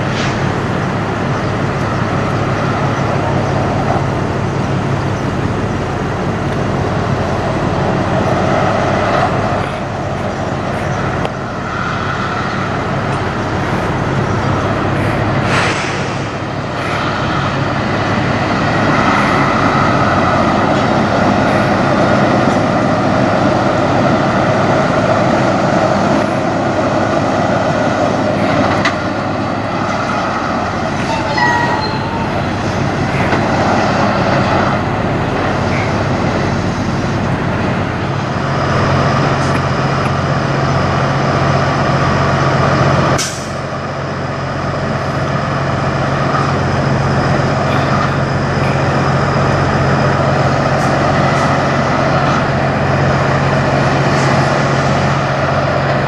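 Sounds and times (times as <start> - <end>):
truck diesel engine running: 0.0 - 56.0
brief high squeak: 31.0 - 32.4.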